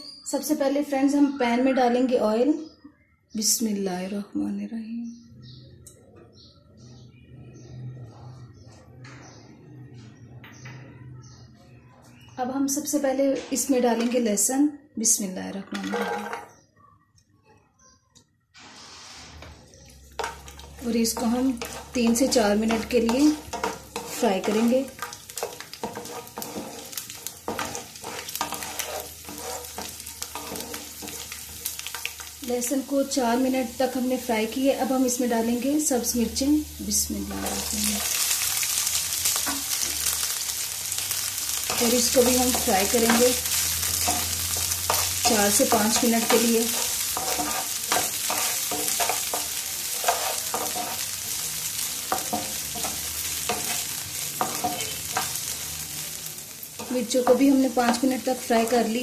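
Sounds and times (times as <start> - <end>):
wooden spatula scraping pan: 15.8 - 16.5, 18.6 - 32.3, 37.0 - 38.7, 41.5 - 51.2, 52.0 - 55.5
garlic sizzling in hot oil: 18.6 - 59.0.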